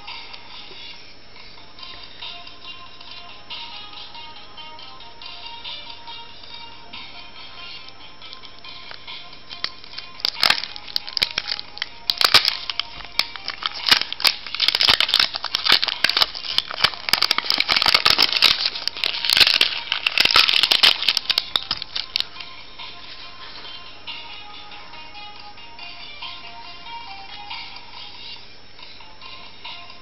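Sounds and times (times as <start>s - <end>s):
faint background music: 0.0s - 30.0s
plastic label crinkling and tearing: 9.6s - 22.4s.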